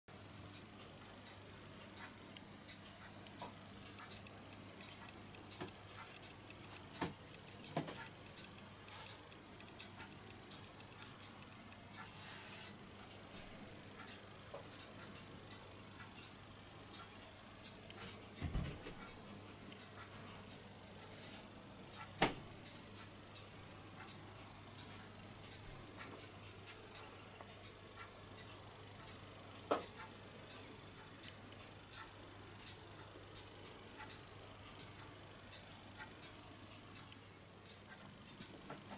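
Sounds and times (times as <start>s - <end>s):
low steady hum: 0.1s - 38.9s
sharp clicks: 0.5s - 18.0s
toy steam engine ticking: 0.5s - 18.2s, 19.0s - 38.6s.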